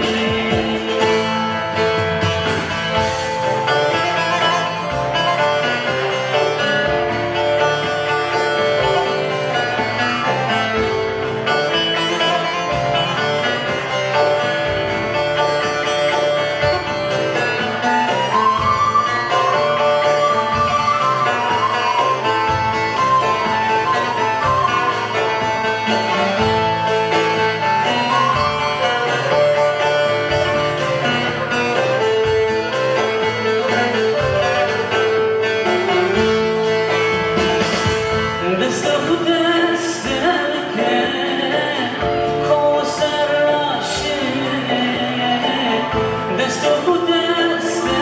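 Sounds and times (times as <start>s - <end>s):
man singing: 0.0s - 1.8s, 38.4s - 48.0s
live folk music: 0.0s - 48.0s.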